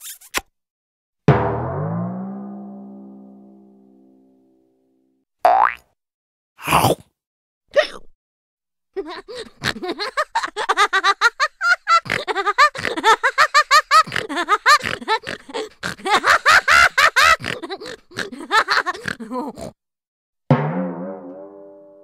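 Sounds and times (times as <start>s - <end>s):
person laughing with snorts: 9.2s - 10.5s, 11.8s - 19.8s.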